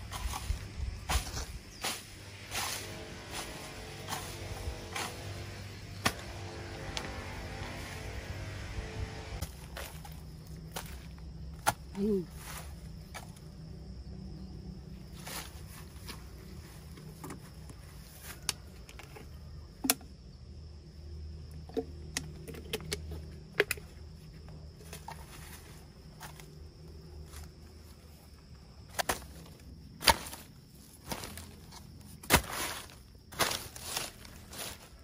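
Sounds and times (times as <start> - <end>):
rustling: 27.2 - 35.0.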